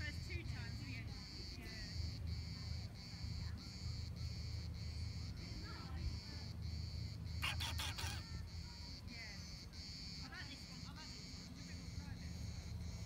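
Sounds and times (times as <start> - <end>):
high-pitched insect chorus: 0.7 - 13.0.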